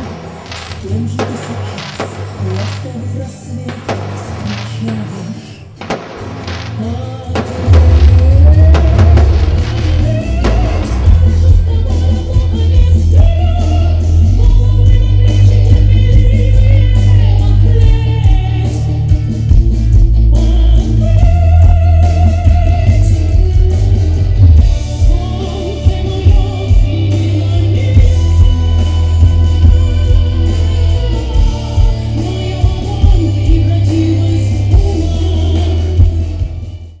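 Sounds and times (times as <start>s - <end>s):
amplified music with heavy bass: 0.0s - 37.0s
woman singing with vibrato: 6.8s - 18.9s.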